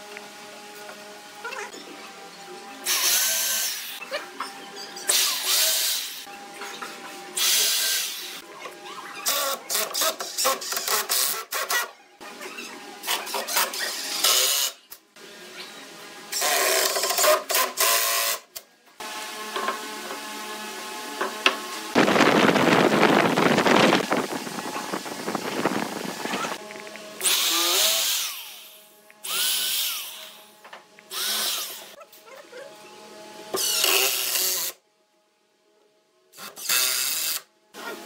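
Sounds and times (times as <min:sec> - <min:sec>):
electric drill drilling into wood: 0:05.1 - 0:06.2, 0:13.5 - 0:14.8, 0:27.2 - 0:30.4, 0:31.1 - 0:32.0, 0:33.6 - 0:34.8, 0:36.4 - 0:37.5.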